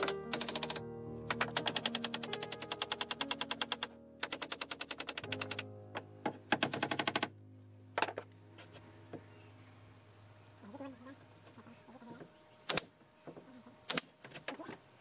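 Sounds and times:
rapid mechanical clicks: 0:00.0 - 0:05.6, 0:06.5 - 0:07.3
low steady hum: 0:05.6 - 0:15.0.

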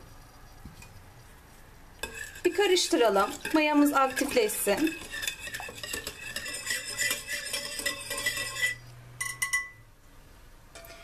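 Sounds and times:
whisk clinking against bowl: 0:02.0 - 0:09.8.

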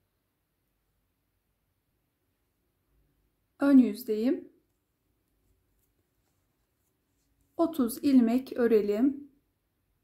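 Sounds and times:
person speaking: 0:03.6 - 0:04.8, 0:05.5 - 0:09.4.

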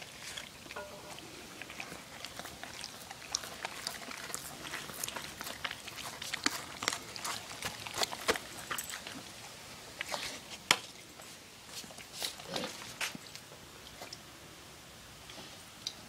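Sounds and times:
dog licking and chewing: 0:00.0 - 0:14.2.

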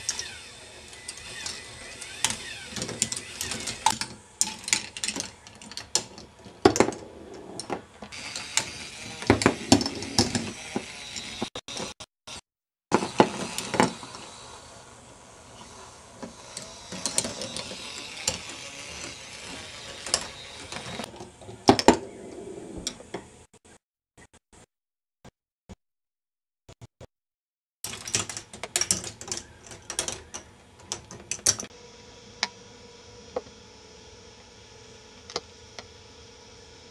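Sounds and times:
motor whirring: 0:00.0 - 0:05.9, 0:08.1 - 0:21.1
plastic balls clacking on tracks: 0:16.2 - 0:22.0.

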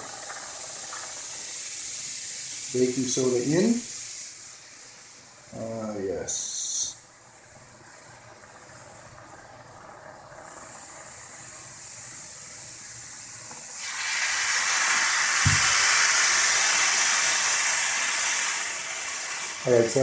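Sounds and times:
vinegar fizzing and hissing: 0:00.0 - 0:20.0
low thump: 0:15.4 - 0:15.8.

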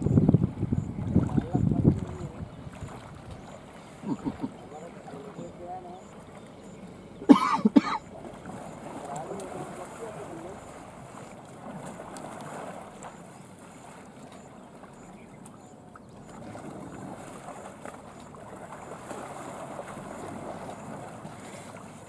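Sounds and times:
wind on microphone: 0:00.0 - 0:04.6
water sloshing and splashing: 0:00.0 - 0:22.0.

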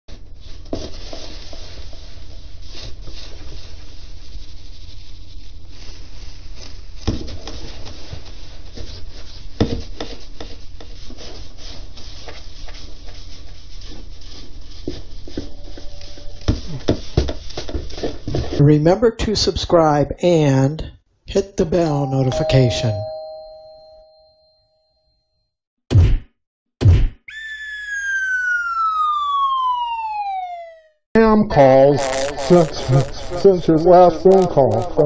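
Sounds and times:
scoop sifting cat litter: 0:00.1 - 0:18.6.

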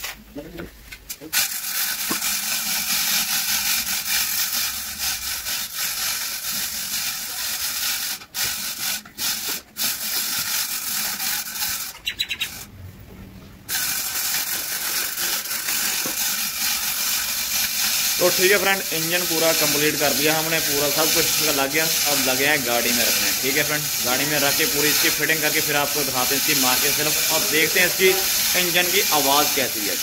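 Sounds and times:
steady loud hiss: 0:13.7 - 0:30.0.

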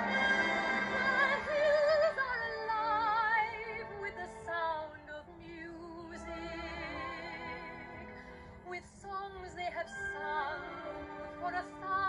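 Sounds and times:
orchestral chord: 0:00.0 - 0:03.4.

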